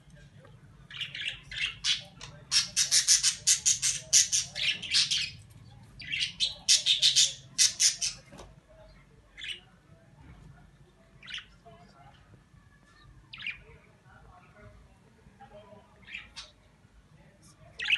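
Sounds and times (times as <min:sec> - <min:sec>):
cockatiels squawking: 0:01.0 - 0:05.4, 0:06.0 - 0:08.2.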